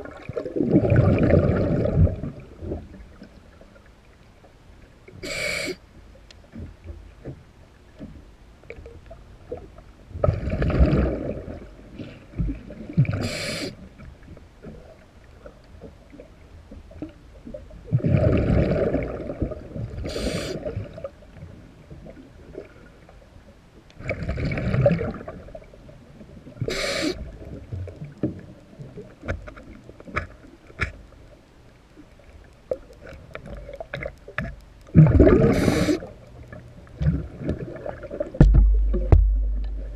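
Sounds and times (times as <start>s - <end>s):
exhaled bubbles rumbling: 0.0s - 3.7s, 9.1s - 13.3s, 17.0s - 21.2s, 24.0s - 29.4s, 32.7s - 39.9s
faint ticks: 3.1s - 9.9s, 26.6s - 35.0s
regulator inhale hiss: 5.2s - 5.8s, 13.2s - 13.8s, 20.0s - 20.8s, 26.6s - 27.3s, 35.4s - 36.2s.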